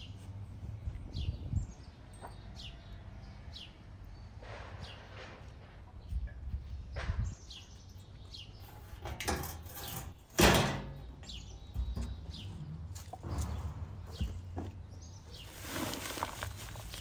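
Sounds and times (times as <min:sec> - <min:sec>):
small birds chirping: 0:00.0 - 0:17.0
metal sheet scraping on brick: 0:08.7 - 0:10.9
metal sheet clanking: 0:08.8 - 0:11.2.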